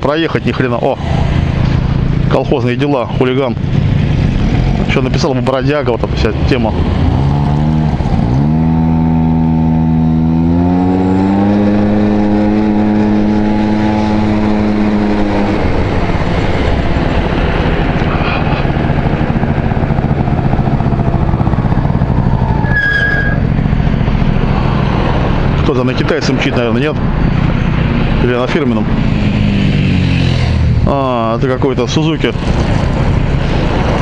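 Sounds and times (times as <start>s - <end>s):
road and wind noise: 0.0s - 34.0s
scooter engine accelerating: 6.3s - 25.6s, 28.8s - 31.2s, 32.2s - 34.0s
high squeak: 22.5s - 23.5s.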